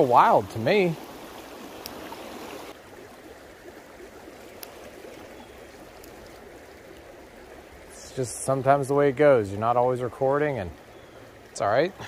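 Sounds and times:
creek water rushing over rocks: 0.0s - 12.0s.

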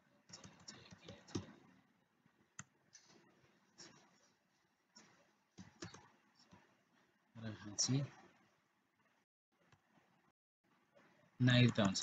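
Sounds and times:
faint keyboard typing: 0.2s - 1.8s, 2.5s - 6.8s, 11.4s - 12.0s.

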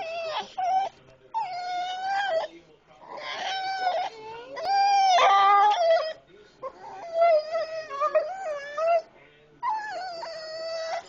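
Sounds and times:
dog whining: 0.0s - 11.0s.

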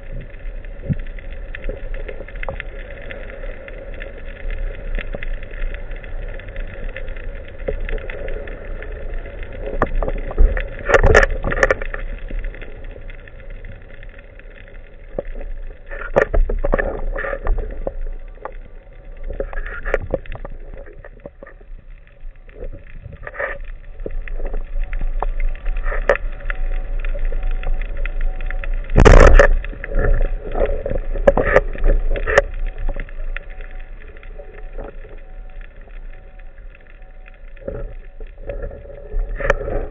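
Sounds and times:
faint steady tones: 0.0s - 39.9s
underwater low rumble: 0.0s - 39.9s
loud bursts of noise and clicks: 23.2s - 39.9s.

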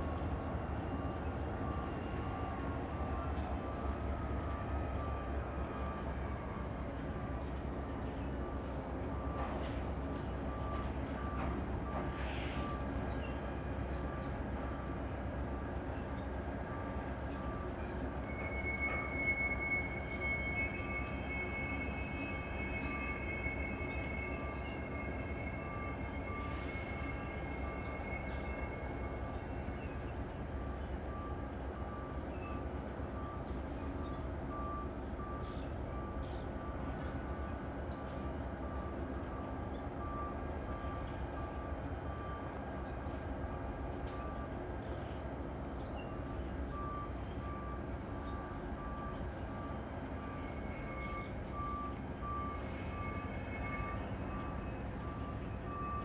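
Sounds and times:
low rumble of railroad yard: 0.0s - 56.0s
high steady squeal: 17.3s - 31.5s.

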